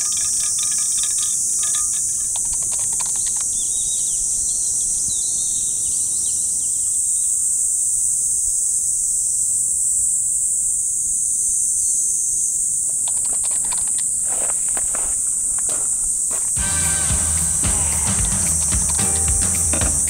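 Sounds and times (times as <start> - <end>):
bird chirps: 0.0 - 7.3
insect chorus drone: 0.0 - 20.0.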